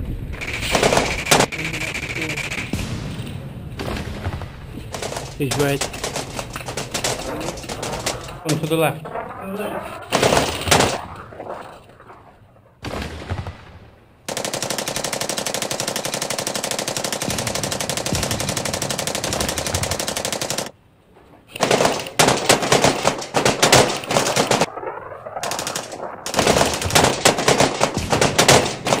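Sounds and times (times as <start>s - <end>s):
airsoft rifle firing bursts: 0.4s - 2.8s, 14.3s - 20.7s, 21.6s - 24.7s, 25.4s - 29.0s.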